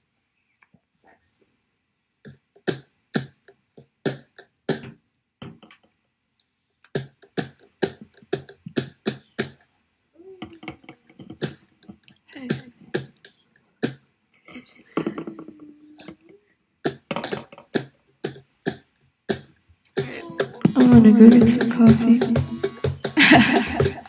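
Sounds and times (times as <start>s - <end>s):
beatbox mouth percussion: 2.2s - 5.8s, 6.8s - 9.7s, 10.4s - 14.1s, 15.0s - 24.0s
wavering vocal tone: 20.1s - 22.7s.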